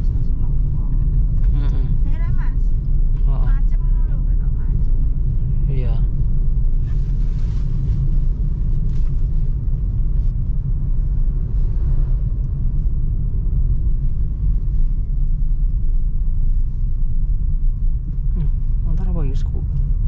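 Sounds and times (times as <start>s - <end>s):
car rumble from inside cabin: 0.0s - 20.0s.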